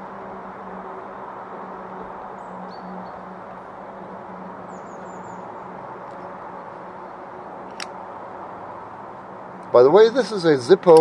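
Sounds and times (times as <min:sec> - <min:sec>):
small birds chirping: 0:04.6 - 0:05.7.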